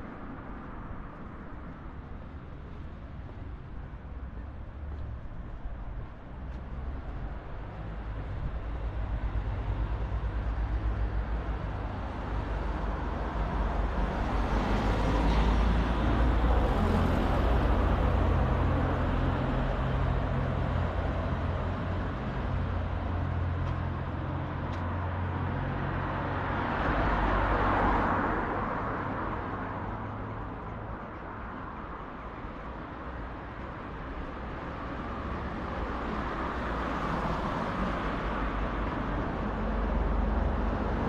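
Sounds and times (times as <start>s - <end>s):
cars passing: 0.0s - 41.0s
low traffic rumble: 0.0s - 41.0s.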